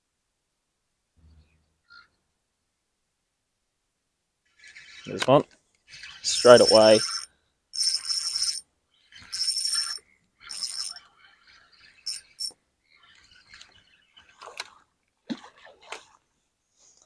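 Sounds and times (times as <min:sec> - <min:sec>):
fishing reel buzzing: 0:05.9 - 0:14.7.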